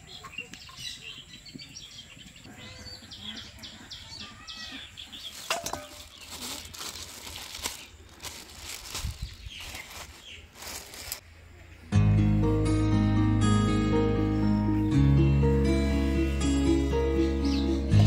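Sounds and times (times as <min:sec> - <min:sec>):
small birds chirping: 0:00.0 - 0:11.9.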